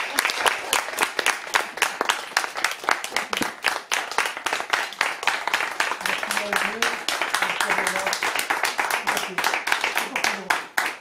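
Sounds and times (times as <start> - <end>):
people clapping: 0.0 - 11.0.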